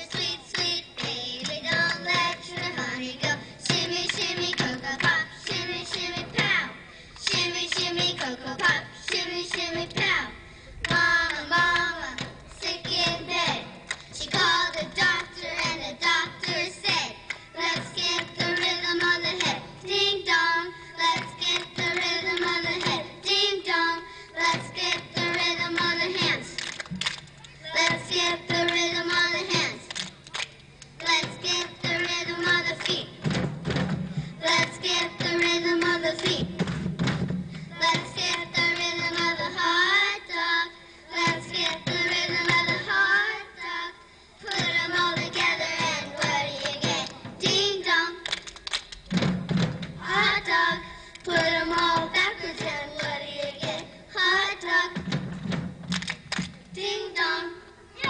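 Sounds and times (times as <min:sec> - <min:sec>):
children singing in unison: 0:00.0 - 0:26.5, 0:31.0 - 0:33.1, 0:34.4 - 0:36.5, 0:37.7 - 0:48.2, 0:50.0 - 0:55.2, 0:56.8 - 0:58.0
children singing: 0:37.8 - 0:48.1, 0:50.0 - 0:55.0, 0:56.8 - 0:58.0
backing music over loudspeaker: 0:50.0 - 0:54.9.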